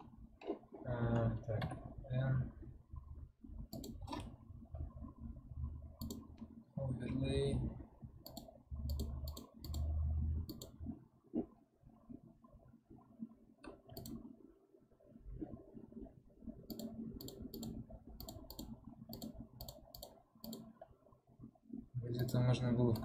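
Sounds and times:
computer mouse clicking: 3.7 - 4.3, 6.0 - 6.5, 8.2 - 10.8, 13.6 - 14.3, 16.7 - 20.8, 22.2 - 23.0.

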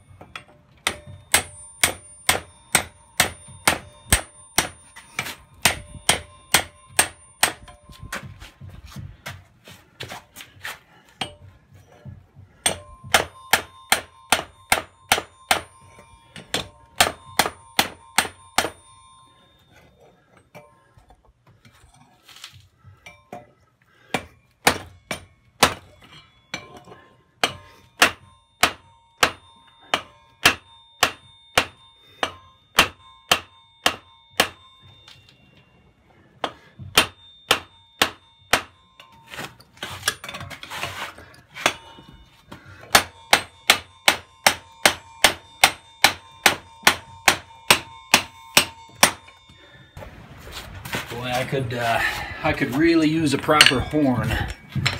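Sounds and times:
hammer striking hot steel on anvil: 0.0 - 8.6, 11.1 - 19.1, 24.1 - 35.2, 36.4 - 50.1, 52.2 - 54.9.

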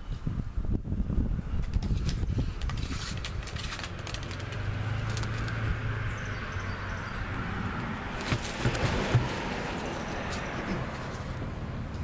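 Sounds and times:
tire knocking on concrete: 8.2 - 10.9.

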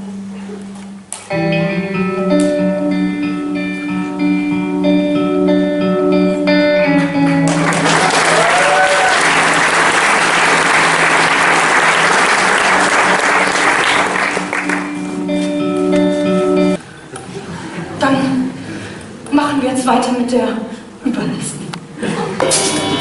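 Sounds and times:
plucked guitar music: 0.0 - 7.9, 9.5 - 16.8
audience applauding: 7.4 - 15.4.

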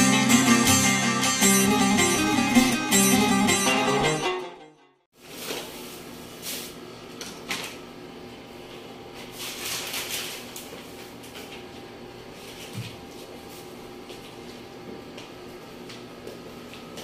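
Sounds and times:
acoustic guitar music: 0.0 - 5.0.

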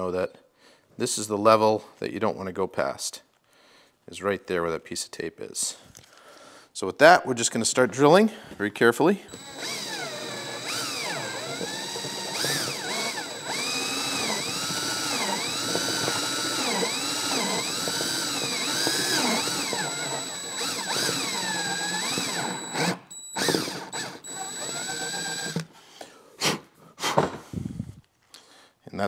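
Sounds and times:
cordless drill drilling plastic: 9.3 - 25.7.

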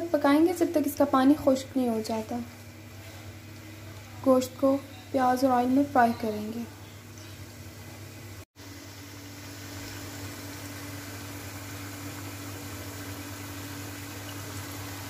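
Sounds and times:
steady low hum: 0.0 - 15.0
meat sizzling in oil: 7.4 - 15.0.

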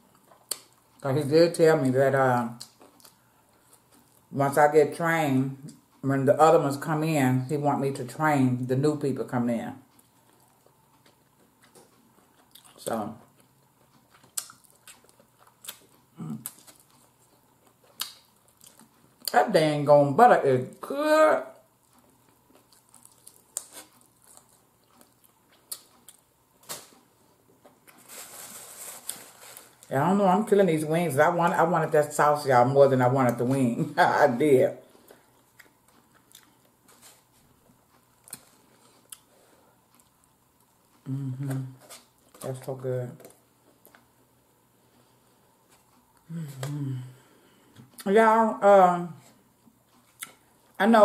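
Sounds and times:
mouth smacks while eating: 13.4 - 19.0.

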